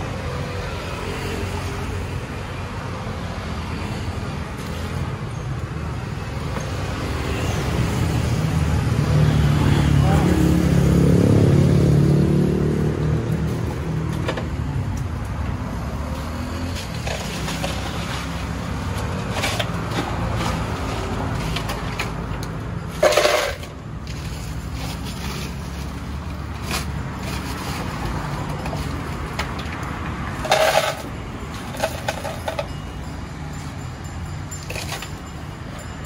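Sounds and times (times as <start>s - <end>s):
road traffic rumble: 0.0s - 36.0s.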